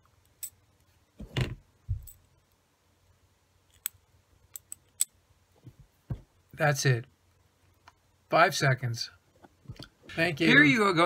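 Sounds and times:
dull handling knocks: 0:05.7 - 0:06.3.

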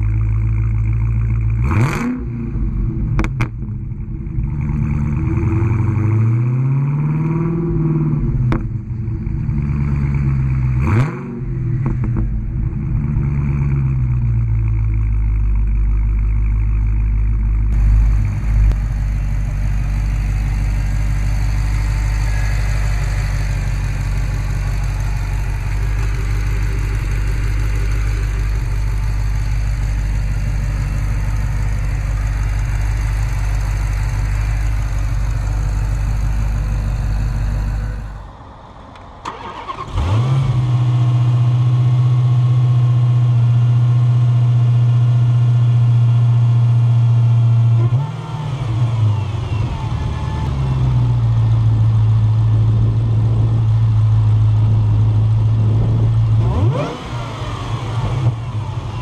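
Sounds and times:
car engine idling: 0:00.0 - 0:59.0
car engine starting: 0:00.0 - 0:59.0.

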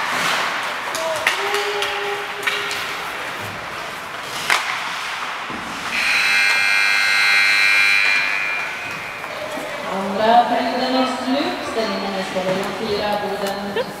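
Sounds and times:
harsh buzzer tone: 0:05.9 - 0:10.0.

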